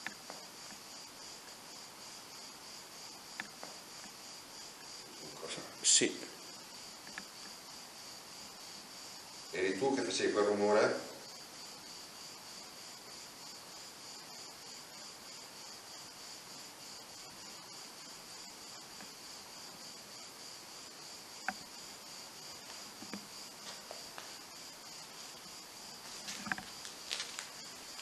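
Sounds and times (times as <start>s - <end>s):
crickets chirping: 0.0s - 28.0s
faint scuffs and knocks: 22.6s - 28.0s.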